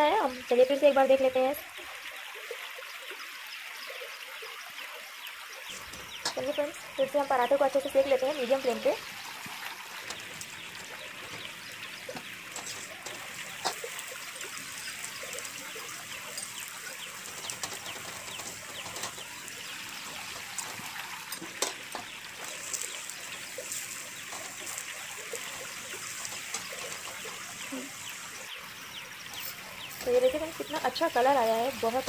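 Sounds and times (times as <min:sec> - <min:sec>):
flatbread sizzling in oil: 0:00.0 - 0:32.0
metal spatula scraping pan: 0:12.5 - 0:14.0.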